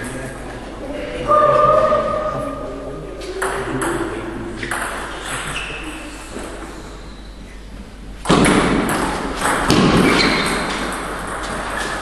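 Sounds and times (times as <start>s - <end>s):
loud echoing thuds: 8.2s - 12.0s.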